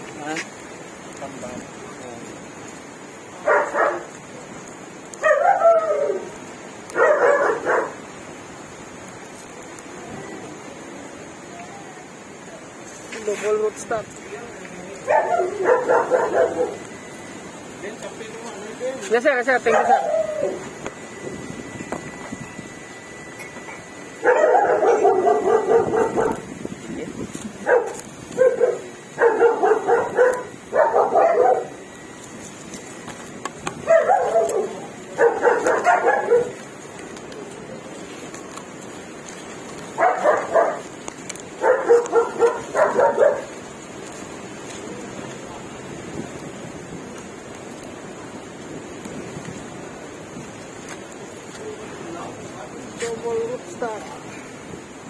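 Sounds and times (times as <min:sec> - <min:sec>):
dog barking: 0:03.4 - 0:04.2, 0:05.1 - 0:06.3, 0:06.9 - 0:08.1, 0:15.0 - 0:16.9, 0:19.6 - 0:20.6, 0:23.7 - 0:26.5, 0:27.6 - 0:31.8, 0:33.8 - 0:36.7, 0:39.9 - 0:41.0, 0:41.6 - 0:43.6.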